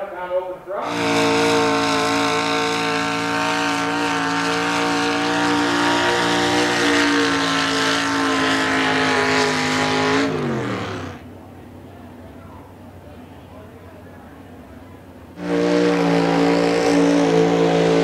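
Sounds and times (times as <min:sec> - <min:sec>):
truck engine revving under load: 0:00.8 - 0:11.3, 0:15.4 - 0:18.0.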